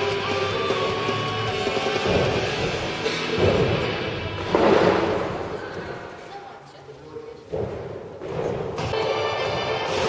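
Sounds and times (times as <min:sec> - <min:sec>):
rock music: 0:00.0 - 0:05.3
loud crash: 0:03.4 - 0:05.6.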